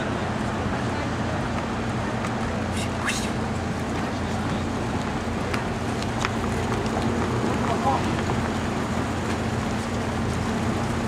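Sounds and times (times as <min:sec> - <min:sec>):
traffic rumble: 0:00.0 - 0:11.0
indistinct voices: 0:02.6 - 0:03.5.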